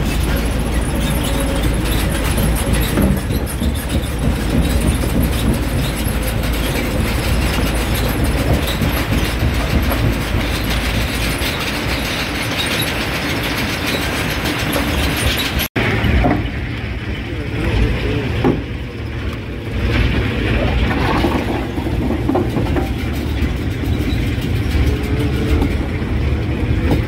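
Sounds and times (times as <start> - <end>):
low machine rumble: 0.0 - 27.0
rock cracking and rattling: 20.0 - 24.0.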